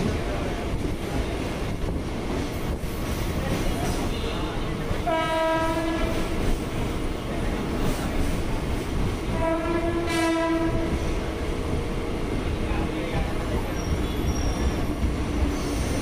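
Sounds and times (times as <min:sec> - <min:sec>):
train rumble: 0:00.0 - 0:16.0
train horn blasts: 0:04.1 - 0:06.3, 0:09.3 - 0:11.0.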